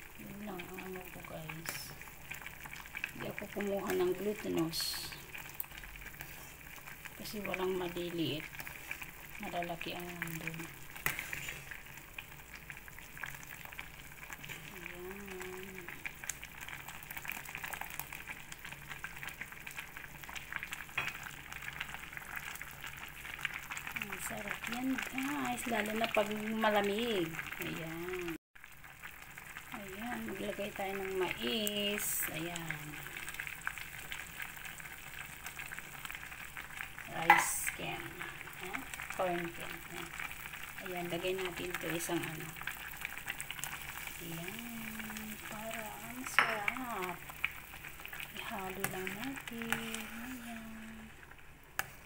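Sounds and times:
water boiling and bubbling: 0.0 - 52.0
metal spoon stirring in pot: 11.0 - 11.8.

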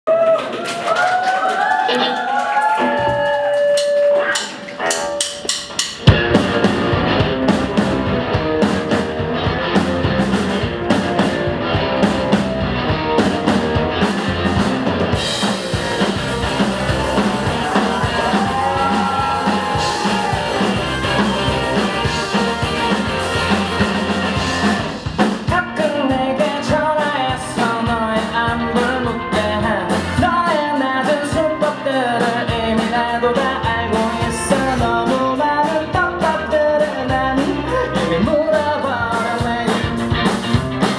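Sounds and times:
drum kit: 0.1 - 40.9
electric guitars: 0.4 - 40.9
man singing lead vocal: 25.4 - 40.2.

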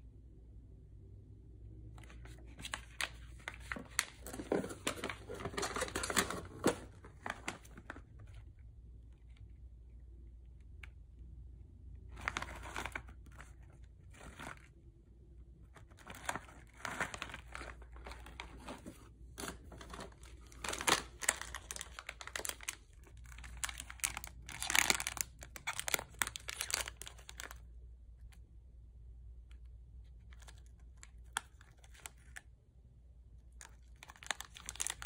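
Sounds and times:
plastic wrappers crackling: 2.2 - 8.4, 15.9 - 27.6, 33.6 - 35.0.

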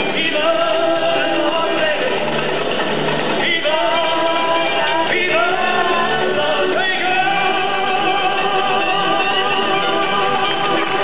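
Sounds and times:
person singing long notes: 3.4 - 11.0.

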